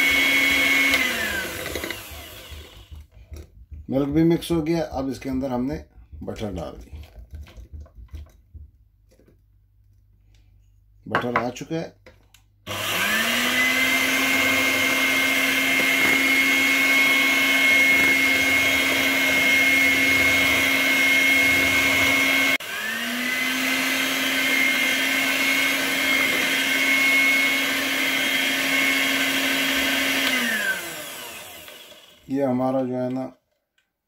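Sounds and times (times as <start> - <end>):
electric hand mixer whining: 0.0 - 4.8, 12.7 - 32.9.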